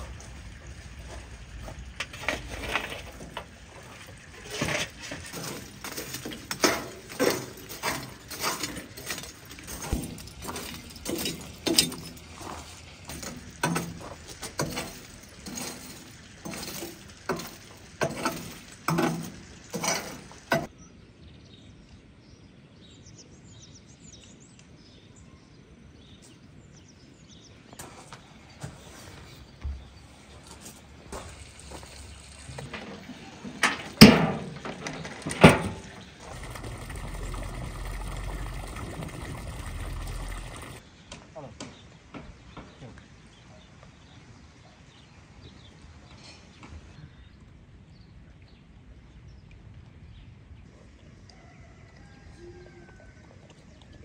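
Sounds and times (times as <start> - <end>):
charcoal lumps clinking: 0.0 - 20.7, 27.8 - 40.8
faint birdsong: 0.0 - 54.0.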